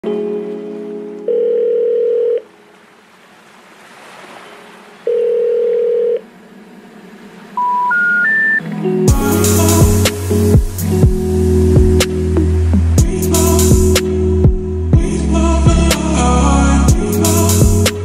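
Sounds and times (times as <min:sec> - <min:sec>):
telephone buzzing tone: 0:01.2 - 0:02.5, 0:05.1 - 0:06.2, 0:07.6 - 0:08.6
telephone ringing beeps: 0:01.3 - 0:02.4, 0:05.1 - 0:06.2, 0:07.6 - 0:08.6
short rising telephone tones: 0:05.1 - 0:06.2, 0:07.6 - 0:08.6.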